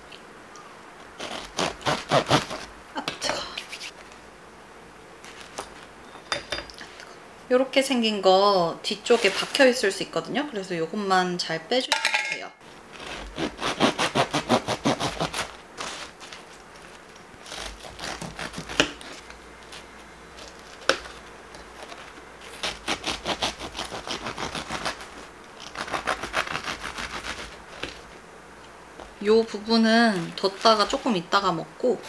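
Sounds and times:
bread knife sawing through loaf: 1.2s - 2.7s, 12.9s - 16.4s, 17.4s - 19.8s, 21.9s - 28.0s, 29.7s - 31.2s.

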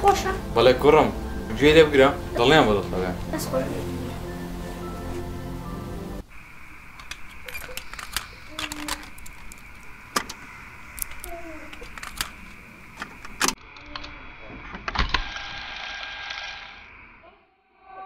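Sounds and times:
music: 0.0s - 6.2s
faint steady hiss: 0.0s - 13.6s
cassette deck buttons clacking: 11.0s - 13.6s.

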